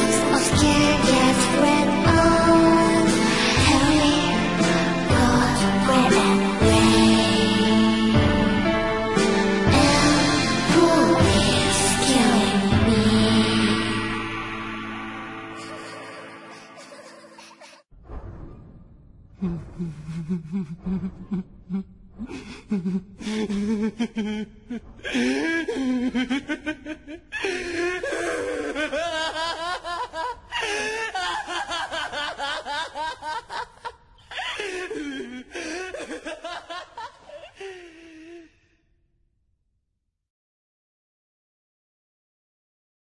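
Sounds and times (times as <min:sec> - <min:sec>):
person laughing: 0:15.6 - 0:17.8, 0:19.4 - 0:38.4.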